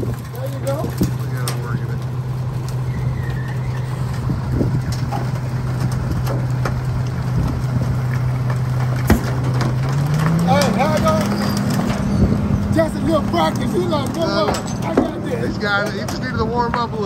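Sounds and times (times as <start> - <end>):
garbage truck engine and pump hum: 0.0 - 17.0
light metal clanks: 13.5 - 16.9.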